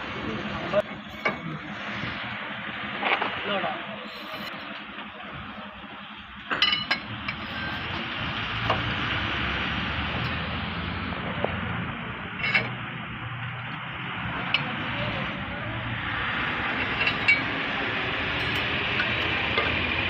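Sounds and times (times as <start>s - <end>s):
steady background noise: 0.0s - 20.0s
hammer clinking on metal: 6.5s - 7.8s, 12.4s - 12.8s, 16.7s - 17.6s.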